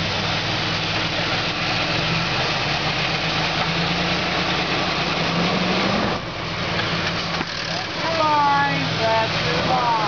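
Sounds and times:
off-road vehicle engine under load: 0.0 - 10.0.

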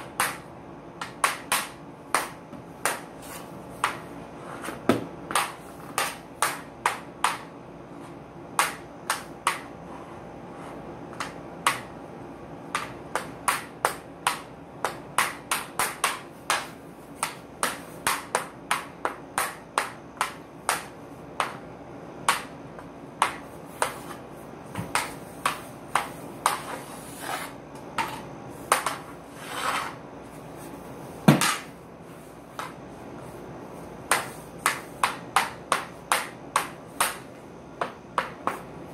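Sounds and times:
stick scraping floor: 2.2 - 6.2, 23.7 - 33.4
hockey stick clacking ball: 4.7 - 7.5, 12.8 - 21.6, 24.8 - 30.0, 34.1 - 38.7.

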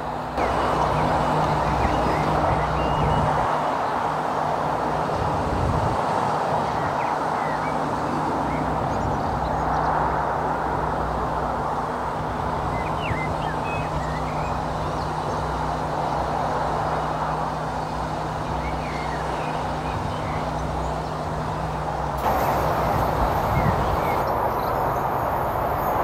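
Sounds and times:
train rumbling past: 0.0 - 5.5, 21.8 - 26.0
small birds chirping: 0.3 - 4.9, 6.3 - 10.1, 12.2 - 26.0.

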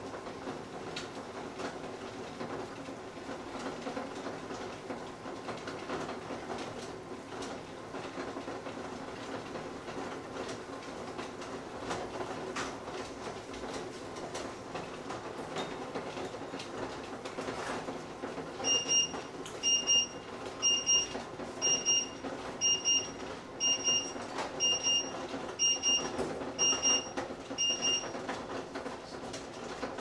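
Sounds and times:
microwave oven beeping: 18.5 - 28.8.

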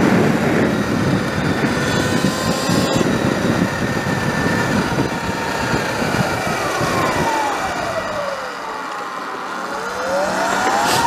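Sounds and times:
wind rush on microphone: 0.0 - 8.5
electric motor whine: 0.0 - 11.0.

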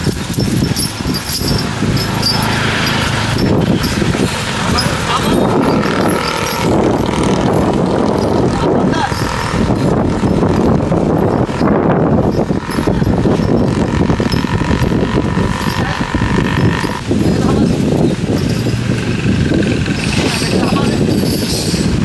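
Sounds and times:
engine running: 0.0 - 22.0
people talking: 3.8 - 6.2, 8.1 - 9.4, 15.5 - 18.2, 20.1 - 21.2.

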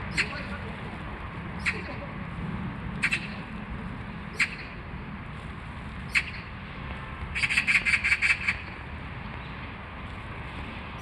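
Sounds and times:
bird calling: 0.1 - 0.5, 1.6 - 2.0, 3.0 - 3.4, 4.3 - 4.8, 7.4 - 8.8
bird chattering: 0.1 - 0.5, 1.6 - 2.0, 3.0 - 3.4, 4.4 - 4.7.

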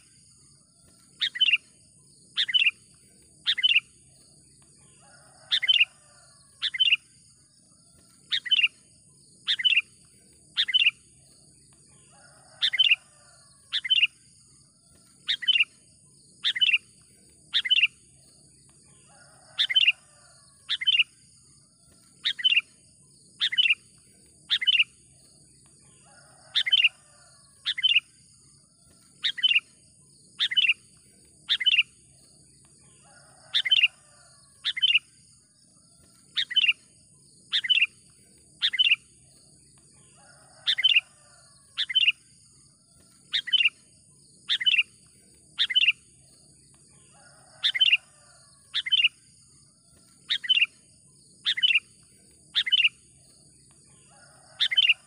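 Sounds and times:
bulbul calling: 1.2 - 1.6, 2.4 - 2.8, 3.4 - 3.9, 5.5 - 5.9, 6.6 - 7.0, 8.3 - 8.7, 9.5 - 9.9, 10.6 - 11.0, 15.3 - 15.7, 16.4 - 16.9, 17.5 - 17.9, 19.6 - 20.0, 20.7 - 21.1, 22.2 - 22.7, 23.4 - 23.8, 24.5 - 24.9, 26.5 - 26.9, 27.6 - 28.1, 29.2 - 29.7, 30.4 - 30.8, 31.5 - 31.9, 33.5 - 33.9, 34.6 - 35.0, 36.4 - 36.8, 37.5 - 38.0, 38.6 - 39.0, 40.7 - 41.0, 41.8 - 42.2, 43.3 - 43.8, 44.5 - 44.9, 45.6 - 46.0, 47.6 - 48.0, 48.7 - 49.2, 50.3 - 50.7, 51.4 - 51.9, 52.6 - 53.0, 54.6 - 55.0.

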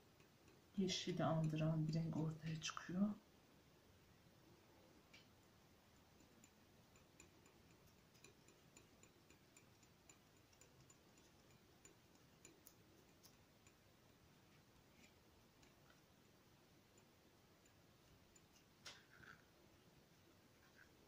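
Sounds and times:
palette knife ticking on paper: 0.0 - 2.8, 5.9 - 18.9.

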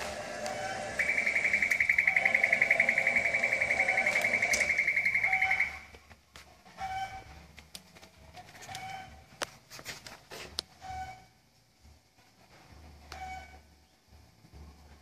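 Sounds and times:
pulsing high alarm beep: 0.5 - 5.9.

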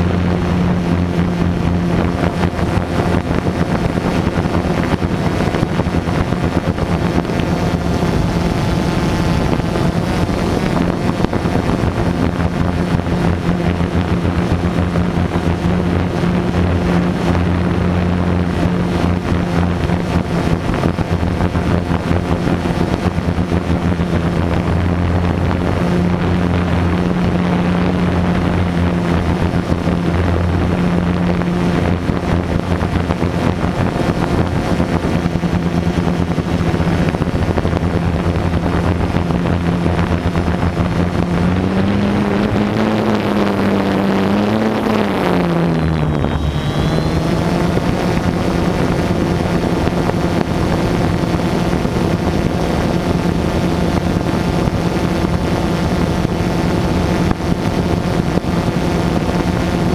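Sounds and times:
drone propellers humming: 0.0 - 59.9.

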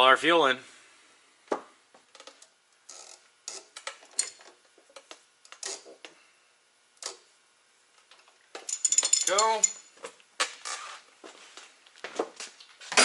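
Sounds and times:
tools clicking and clattering: 8.6 - 9.9.

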